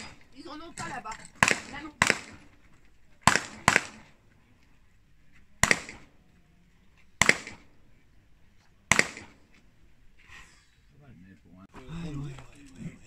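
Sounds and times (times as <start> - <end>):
pistol shots with echo: 0.0 - 0.3, 1.3 - 2.5, 3.2 - 4.2, 5.6 - 6.2, 7.2 - 7.9, 8.9 - 9.6.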